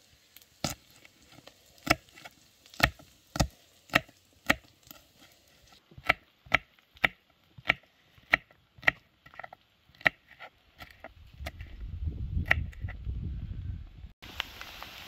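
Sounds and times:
knife chopping on wooden board: 0:06.0 - 0:11.7.

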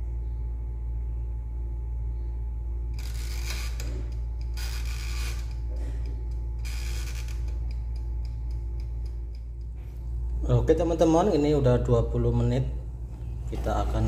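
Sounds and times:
steady low hum: 0:00.0 - 0:14.0
timer knob ratcheting clicks: 0:03.0 - 0:09.8
timer ticking: 0:06.3 - 0:09.8.

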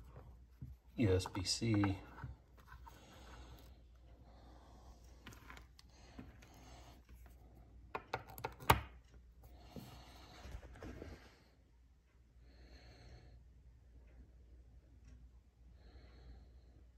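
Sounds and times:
faint handling sounds: 0:00.0 - 0:11.5.

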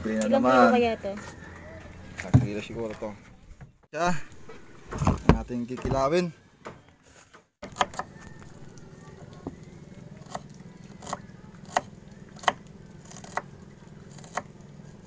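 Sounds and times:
knife chopping on wooden board: 0:07.6 - 0:08.2, 0:11.0 - 0:13.5.

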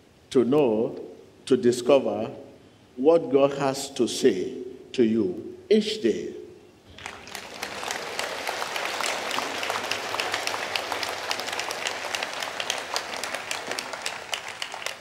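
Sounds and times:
crowd applauding: 0:06.9 - 0:15.0.

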